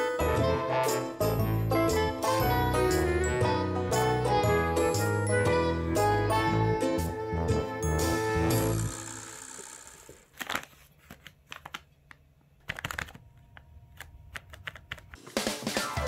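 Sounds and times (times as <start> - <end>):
background music: 0.0 - 9.6, 15.2 - 16.0.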